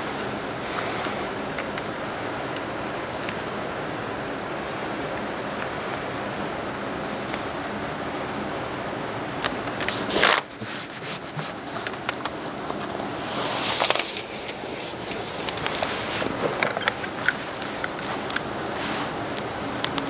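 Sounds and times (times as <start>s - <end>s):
steady hiss: 0.0s - 20.0s
membrane rustling and scraping: 9.8s - 19.5s.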